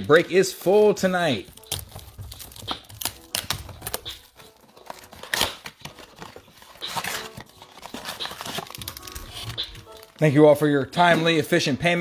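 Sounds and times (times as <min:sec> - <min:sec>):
plastic wrap crinkling and tearing: 0:01.2 - 0:10.7.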